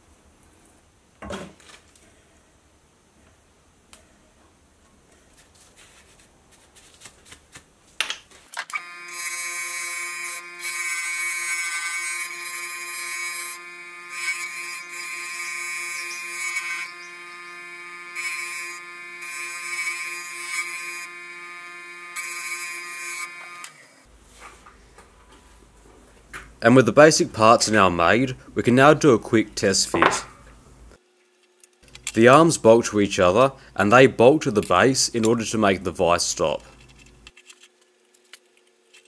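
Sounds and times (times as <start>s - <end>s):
grinder motor whine: 8.7s - 24.0s.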